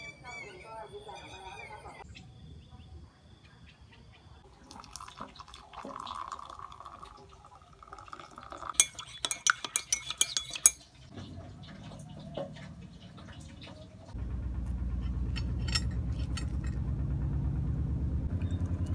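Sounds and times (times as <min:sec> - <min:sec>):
water pouring into mug: 0:04.5 - 0:10.8
sharp clinks against mug: 0:08.7 - 0:10.8.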